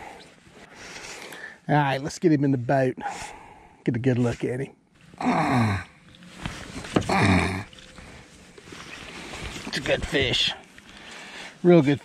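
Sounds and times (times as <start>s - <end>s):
man grunting with effort: 5.2s - 5.9s, 7.0s - 7.7s.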